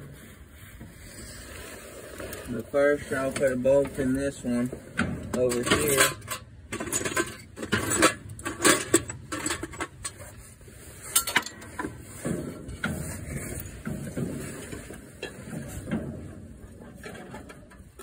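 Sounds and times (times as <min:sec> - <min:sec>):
metal tools clinking and clicking: 0:05.3 - 0:10.3, 0:11.0 - 0:11.9.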